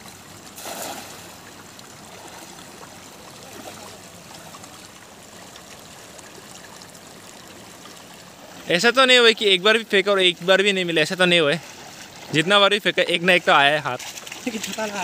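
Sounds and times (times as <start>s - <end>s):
cast net splashing on water: 0.0s - 4.8s
shallow river water flowing: 0.0s - 15.0s.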